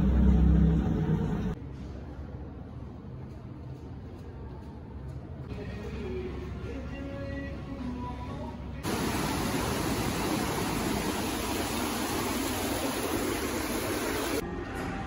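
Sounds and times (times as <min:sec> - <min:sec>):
fountain water splashing: 0:08.8 - 0:14.4.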